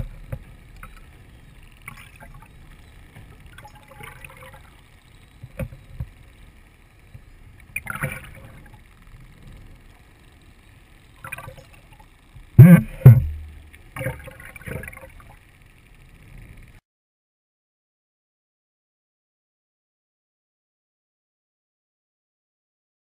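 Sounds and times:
muffled underwater sloshing: 0.0 - 16.7.

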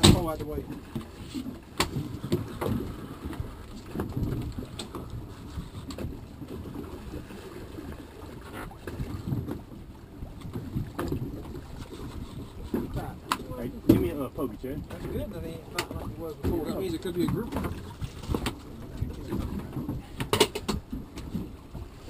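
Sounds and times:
knocks on boat: 0.0 - 1.1, 1.7 - 5.1, 10.5 - 11.3, 12.7 - 14.2, 14.8 - 21.5
water sloshing against hull: 0.0 - 22.0
wind buffeting microphone: 0.0 - 22.0.

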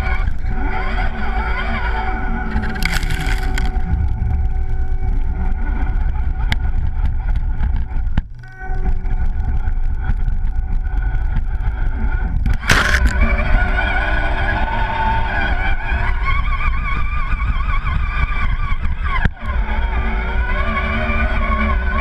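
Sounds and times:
electric motor and gears whining: 0.0 - 22.0
low rumble: 0.0 - 22.0
short noisy bursts: 12.6 - 14.4.

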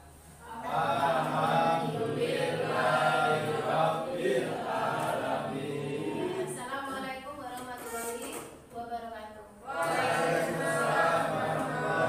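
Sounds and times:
students reciting in unison: 0.4 - 7.0, 9.6 - 12.0.

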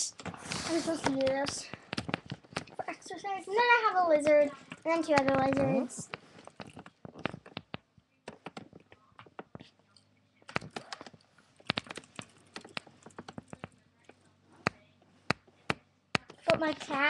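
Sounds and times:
plastic exercise ball clicking: 1.0 - 2.8, 4.7 - 9.7.

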